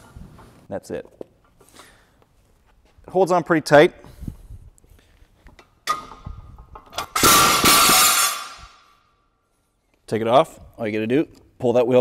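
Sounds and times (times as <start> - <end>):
barbell plates clanging: 6.8 - 8.7.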